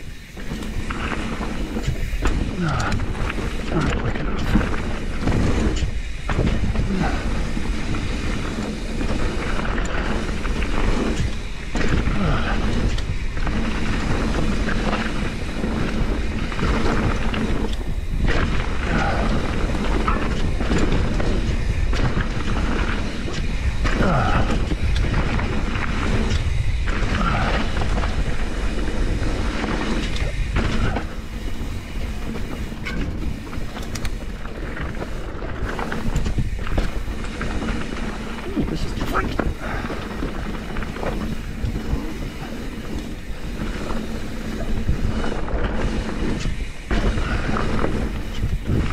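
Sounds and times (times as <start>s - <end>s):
bike knocks and rattles: 0.0s - 48.9s
tyres rumbling on dirt: 0.0s - 48.9s
wind on microphone: 0.0s - 48.9s.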